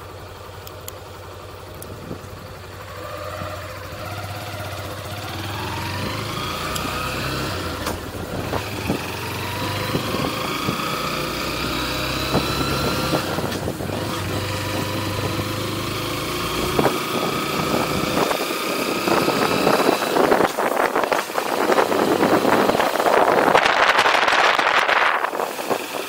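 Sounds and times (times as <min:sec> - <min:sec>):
motorcycle engine running: 0:00.0 - 0:26.0
wind noise on microphone: 0:05.3 - 0:15.8, 0:16.5 - 0:26.0.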